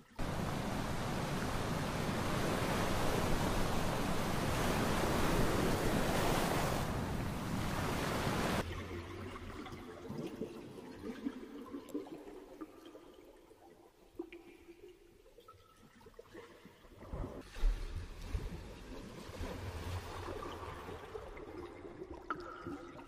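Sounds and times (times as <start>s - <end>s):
ocean surf washing onto beach: 0.2s - 8.6s.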